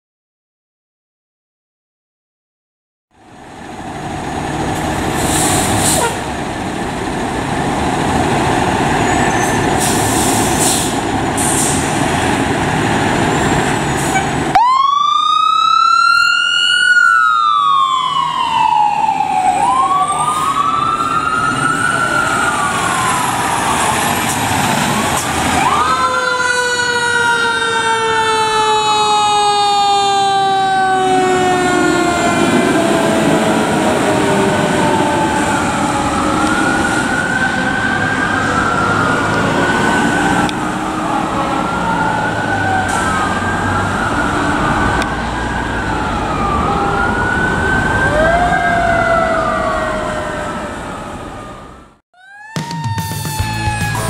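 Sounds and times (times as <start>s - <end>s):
fire truck engines rumbling: 3.2s - 54.0s
mechanical siren wailing: 14.5s - 24.0s, 25.6s - 54.0s.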